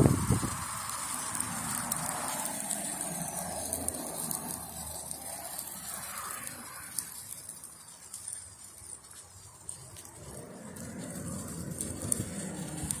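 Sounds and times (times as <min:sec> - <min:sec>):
embers crackling: 0:00.0 - 0:13.0
meat sizzling over charcoal: 0:00.0 - 0:13.0.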